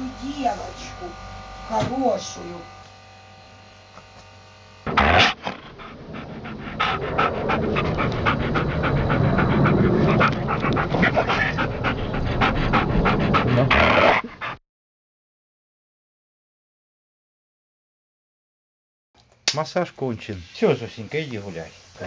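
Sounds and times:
dog panting: 4.9s - 14.6s.

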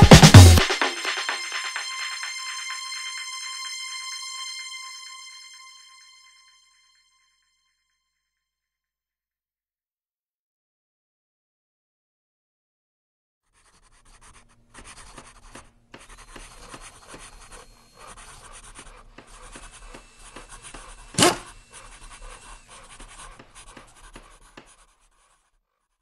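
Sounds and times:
pencil scratching on paper: 13.6s - 25.6s.

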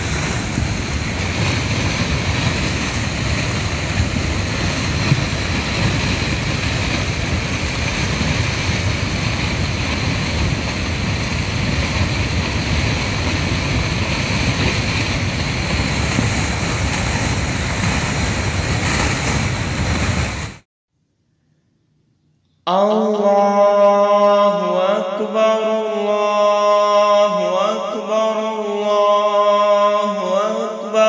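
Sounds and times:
floodwater rushing: 0.0s - 20.6s.

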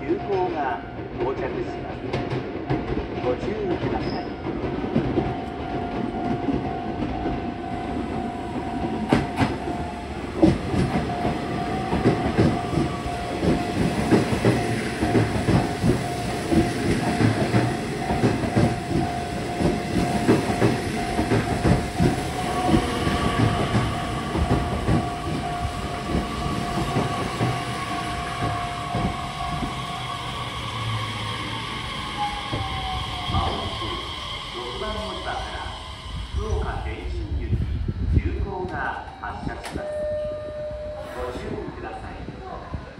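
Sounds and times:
train wheels clattering on rail joints: 2.0s - 30.0s
train brake whine: 8.8s - 37.8s, 39.5s - 41.9s.

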